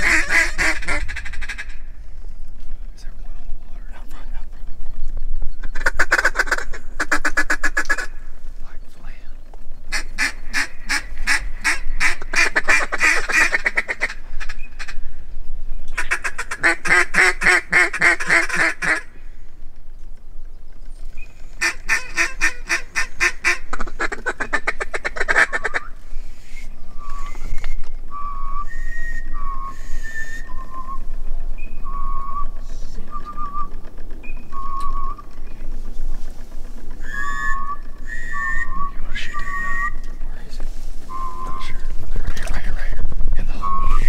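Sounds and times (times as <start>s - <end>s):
duck quacking: 0.0s - 1.9s, 5.7s - 8.2s, 9.9s - 15.0s, 16.0s - 19.1s, 21.6s - 25.9s
high whistled peeps: 25.5s - 35.8s, 37.0s - 40.4s, 41.0s - 41.9s, 43.5s - 44.0s.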